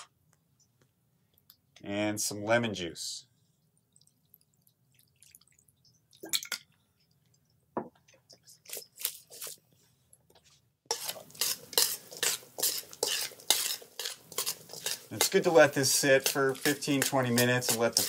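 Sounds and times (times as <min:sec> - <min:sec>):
spoon scraping metal bowl: 0:10.9 - 0:18.0.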